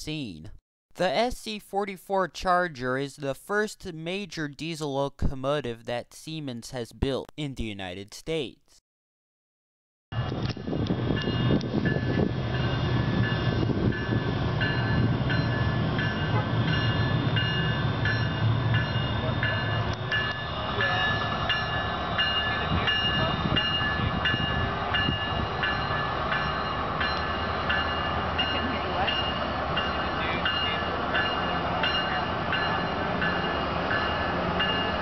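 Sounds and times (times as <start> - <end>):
diesel locomotive rumble: 10.2 - 35.0
bell ringing: 11.2 - 35.0.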